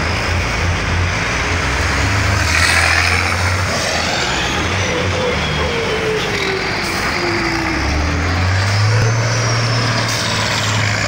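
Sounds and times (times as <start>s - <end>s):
diesel engines revving hard: 0.0s - 11.0s.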